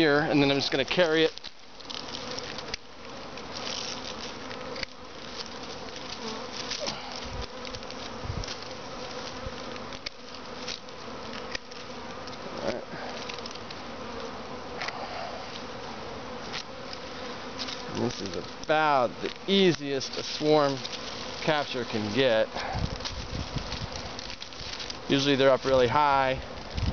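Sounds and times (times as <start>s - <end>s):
bees buzzing: 0.0s - 26.9s.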